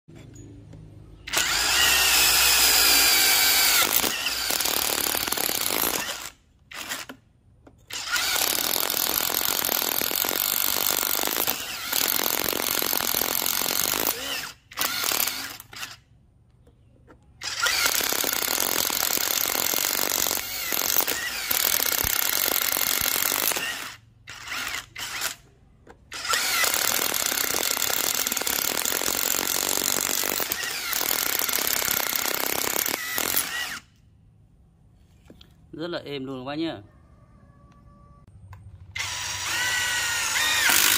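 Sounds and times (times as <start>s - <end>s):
impact driver drilling into brick: 1.3s - 7.2s, 7.9s - 16.0s, 17.4s - 25.5s, 26.1s - 33.9s, 38.9s - 40.9s.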